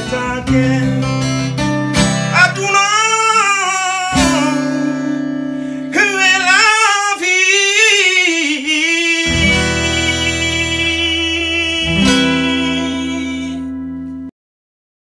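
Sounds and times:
acoustic guitar strumming: 0.0 - 14.3
man singing long wavering notes: 2.3 - 5.2, 5.9 - 13.9.

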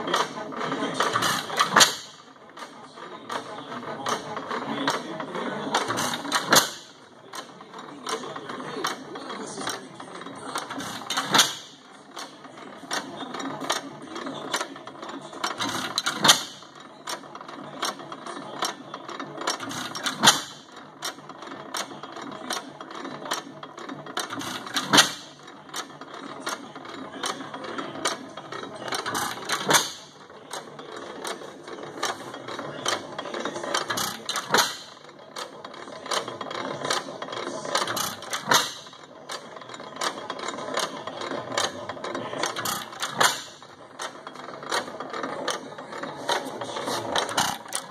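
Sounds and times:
valve gear clicking: 1.0 - 2.3, 10.5 - 13.8, 15.4 - 17.2, 19.5 - 21.2, 24.2 - 26.6, 28.9 - 30.6, 33.7 - 35.5, 37.8 - 40.9, 42.4 - 44.9.

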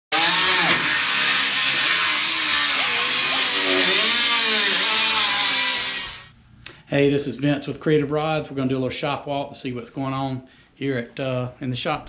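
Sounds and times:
angle grinder on steel: 0.1 - 6.4.

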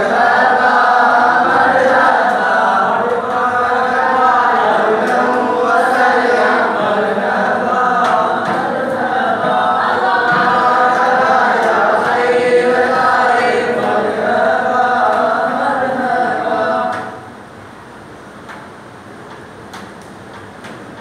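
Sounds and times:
men chanting in unison: 0.0 - 17.2
frame drum strikes: 8.0 - 12.6.

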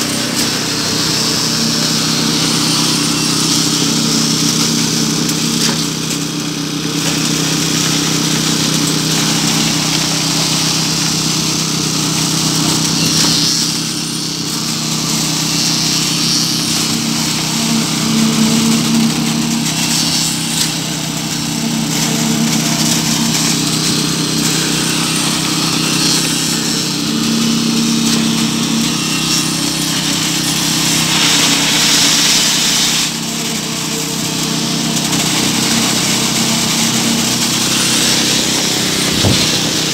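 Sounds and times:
engine droning: 0.0 - 39.9
shifting hiss: 29.5 - 33.9.

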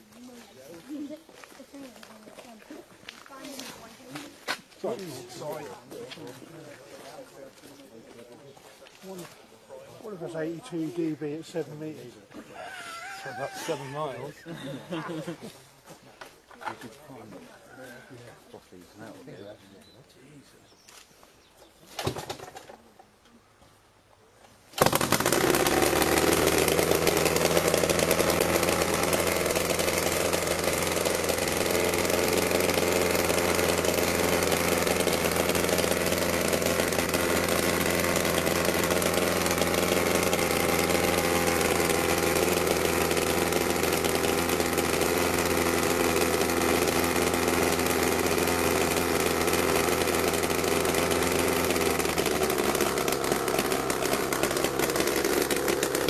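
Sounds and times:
small piston engine running: 10.0 - 12.0, 12.7 - 15.4, 24.8 - 56.0.

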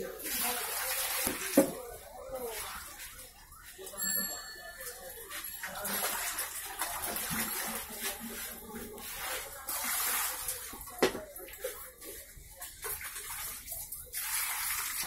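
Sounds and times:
water splashing in basins: 0.0 - 15.0.

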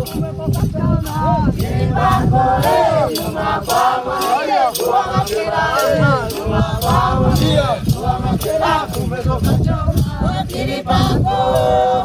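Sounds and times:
sharp percussive beat: 0.0 - 12.0
group singing together: 0.1 - 12.0.

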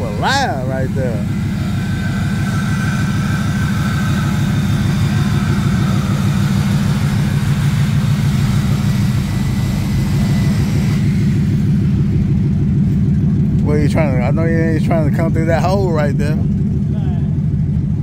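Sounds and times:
deep car exhaust rumble: 0.0 - 18.0.

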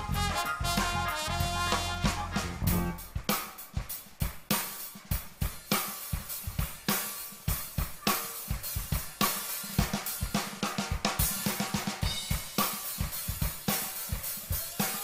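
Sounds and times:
bass drum kicks: 0.0 - 3.3
snare drum hits: 0.0 - 15.0.

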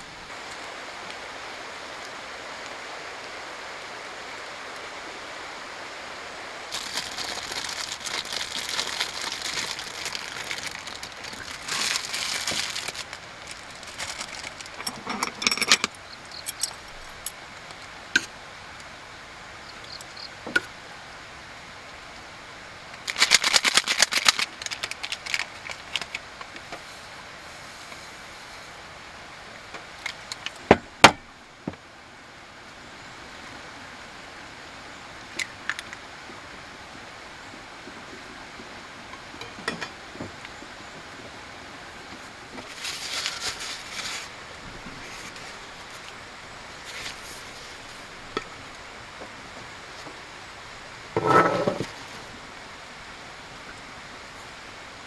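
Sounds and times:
rain hiss: 0.0 - 55.0
plastic packet crinkling: 6.7 - 14.9, 23.0 - 26.2.

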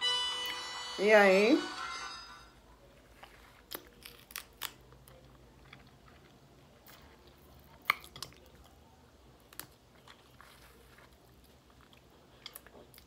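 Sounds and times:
person chewing food: 3.0 - 13.0.

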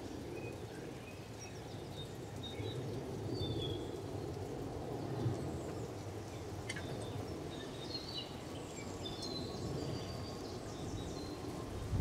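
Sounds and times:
songbirds chirping: 0.0 - 12.0.

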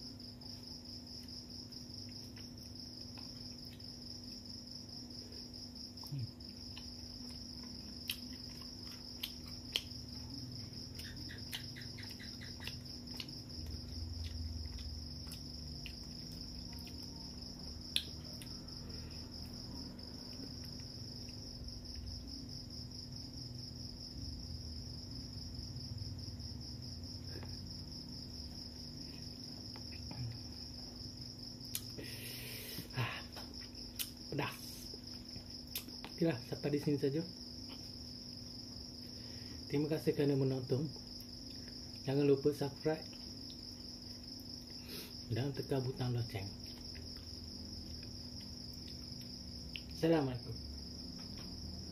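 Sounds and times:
crickets trilling: 0.0 - 51.9
chewing: 6.0 - 18.6
hand-eating clicks and smacks: 6.7 - 10.2, 10.8 - 17.1, 17.9 - 18.6, 31.7 - 32.0, 33.4 - 34.2, 35.7 - 36.2.

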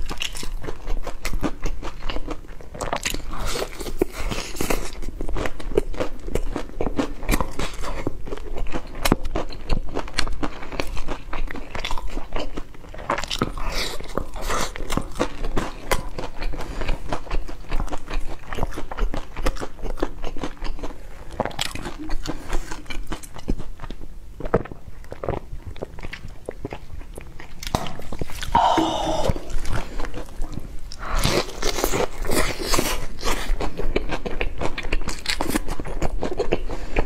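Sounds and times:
crunchy chewing of fried chicken: 0.0 - 28.6, 29.4 - 37.0.

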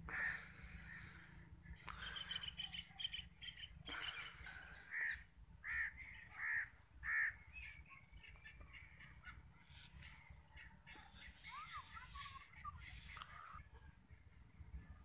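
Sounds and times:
small birds chirping: 0.0 - 15.0
crow cawing: 0.1 - 1.2.

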